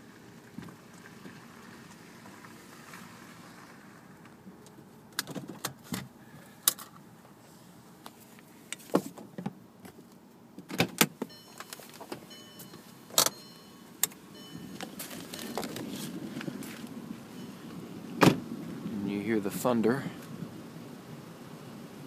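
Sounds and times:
faint high thin tones: 11.3 - 15.6.

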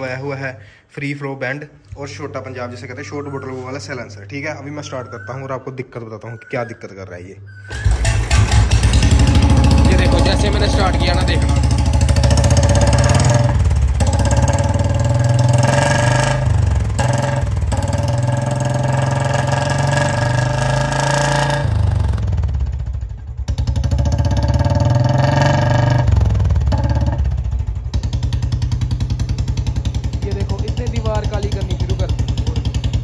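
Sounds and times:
motorcycle engine revving: 7.7 - 33.0.

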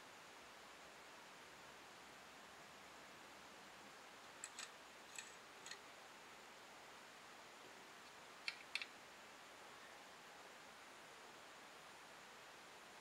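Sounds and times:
faint steady hiss: 0.0 - 13.0
plastic toy parts clicking: 4.4 - 5.8, 8.4 - 8.9.

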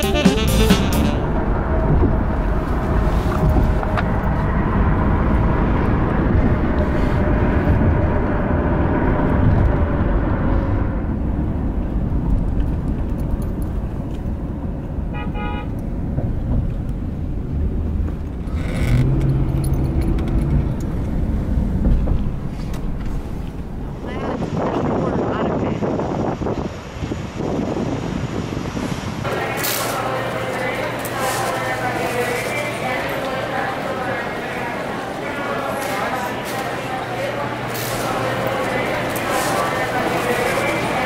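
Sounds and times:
short horn-like tone: 0.0 - 1.4
vehicle rumble: 0.0 - 41.0.

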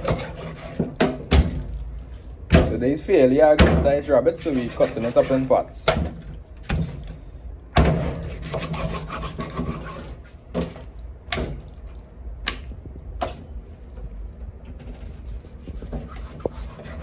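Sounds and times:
knife sawing through meat and bone: 0.0 - 0.8, 4.2 - 5.6, 8.2 - 10.2, 14.9 - 17.0.

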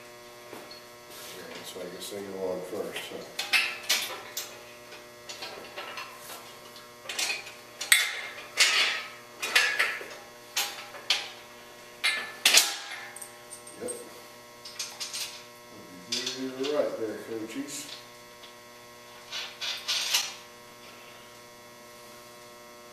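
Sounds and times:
steady electrical hum: 0.0 - 22.9
metal parts clanking: 19.3 - 20.3.

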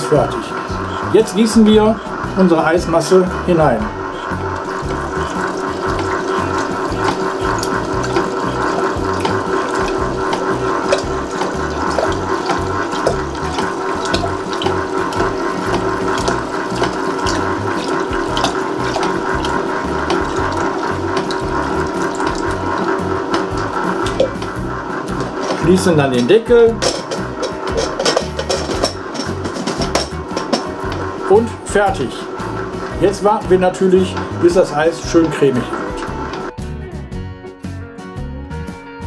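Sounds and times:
ice cream maker motor humming: 0.0 - 36.5
mix pouring into bowl: 4.2 - 26.3.

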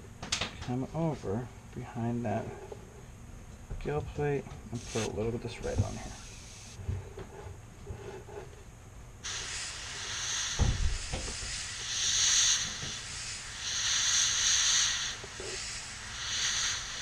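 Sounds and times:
airbrush spraying hiss: 4.8 - 6.8, 9.2 - 17.0.

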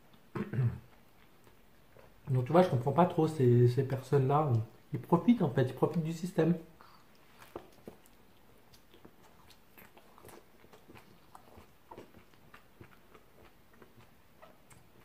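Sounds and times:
mouth chewing with clicks: 0.0 - 2.6, 5.8 - 15.0.

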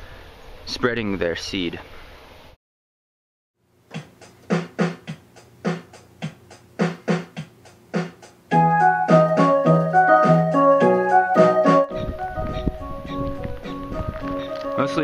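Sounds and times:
electronic keyboard playing: 8.5 - 15.0.

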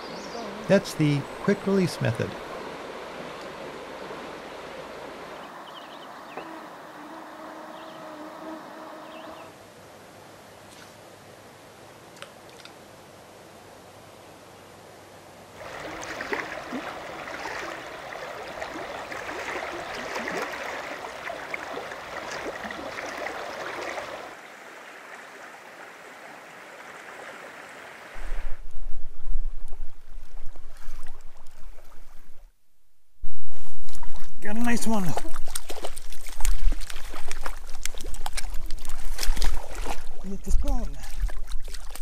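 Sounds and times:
uneven rumble of water: 0.0 - 10.4, 15.4 - 42.0
water rushing over rocks: 15.6 - 28.6.

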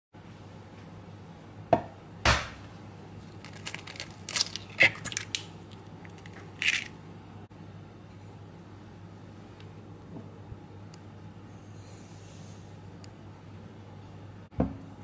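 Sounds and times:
eggshell crackling: 3.2 - 7.0.

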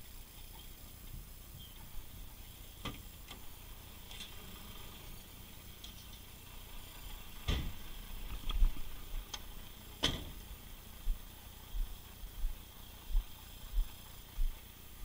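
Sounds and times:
soft footsteps on pavement: 11.0 - 14.6.

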